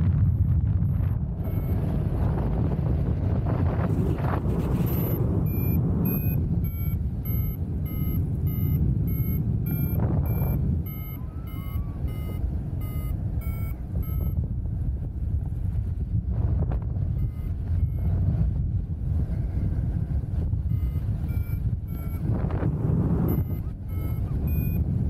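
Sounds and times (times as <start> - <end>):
wind on microphone: 0.0 - 25.0
variometer beeping: 0.8 - 2.2, 3.9 - 14.4, 17.0 - 18.2, 20.4 - 25.0.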